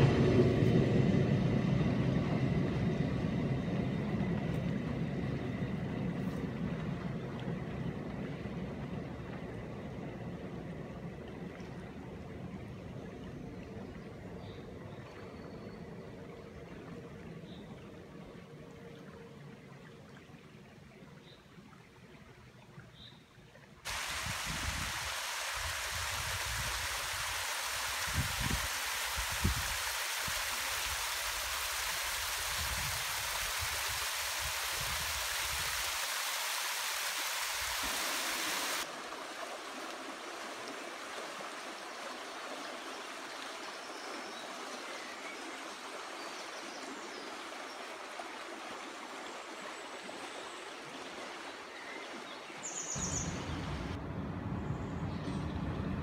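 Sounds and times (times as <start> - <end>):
stream water rushing: 23.7 - 54.0
wind bumps on microphone: 23.9 - 27.2, 28.0 - 29.8.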